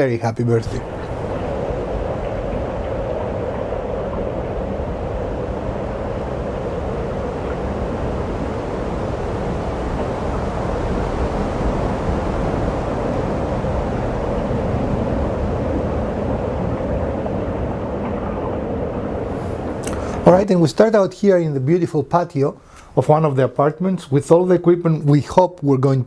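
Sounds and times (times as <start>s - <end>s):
low noisy sound effect: 0.6s - 20.7s.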